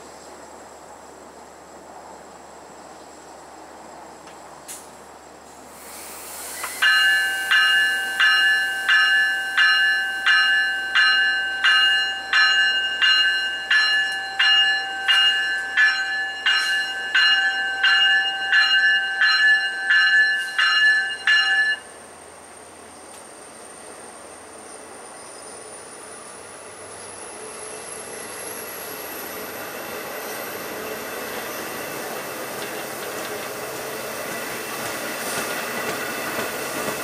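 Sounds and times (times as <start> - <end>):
locomotive bell ringing: 6.8 - 22.0.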